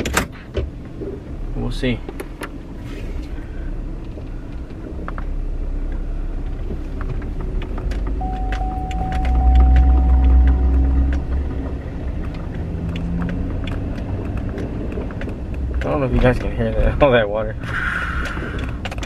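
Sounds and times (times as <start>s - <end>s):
truck engine and road rumble: 0.0s - 19.0s
thin steady whine: 8.2s - 12.2s.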